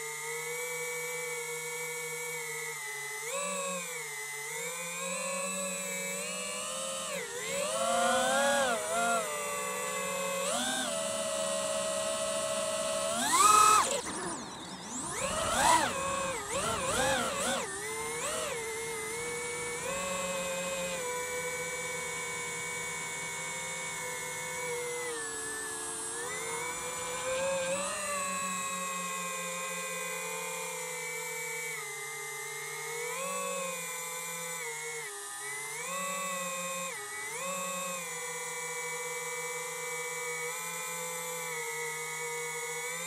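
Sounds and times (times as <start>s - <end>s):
drone propellers whining: 6.1s - 29.0s.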